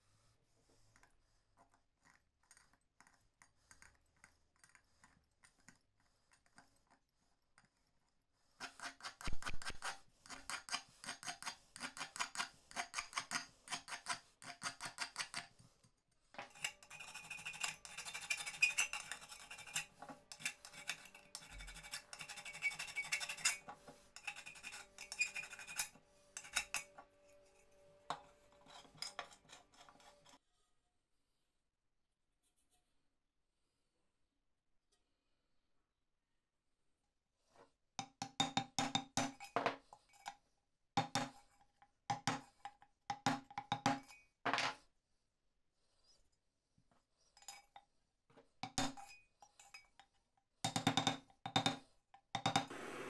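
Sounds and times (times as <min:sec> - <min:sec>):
hand tool scraping metal: 0:08.6 - 0:15.5, 0:16.4 - 0:30.4.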